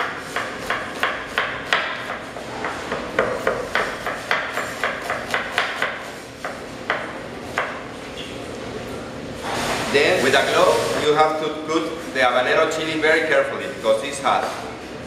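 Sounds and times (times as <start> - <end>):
knife chopping on cutting board: 0.0 - 7.8.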